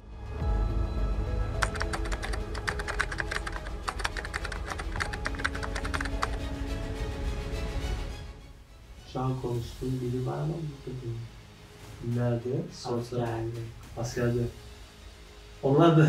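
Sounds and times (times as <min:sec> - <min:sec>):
background music: 0:00.0 - 0:16.0
keyboard typing: 0:01.6 - 0:06.4.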